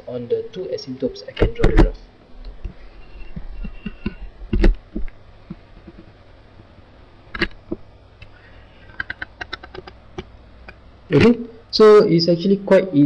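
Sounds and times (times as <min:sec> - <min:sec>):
low steady hum: 0:00.0 - 0:13.0
stylus tapping on tablet screen: 0:02.7 - 0:06.2.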